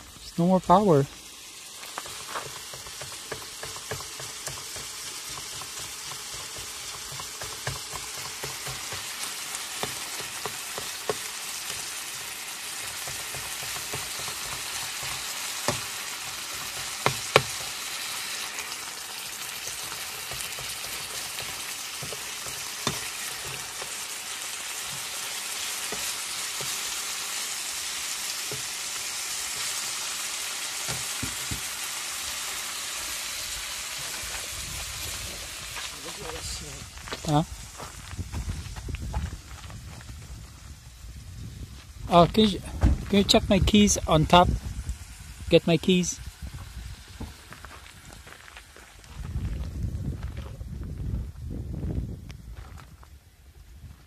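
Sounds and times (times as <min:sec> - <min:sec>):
meat sizzling in frying pan: 0:00.0 - 0:39.3, 0:43.4 - 0:48.7
spatula scraping and tapping pan: 0:01.8 - 0:12.0, 0:12.8 - 0:17.9, 0:18.5 - 0:24.0, 0:25.8 - 0:27.0, 0:28.4 - 0:29.9.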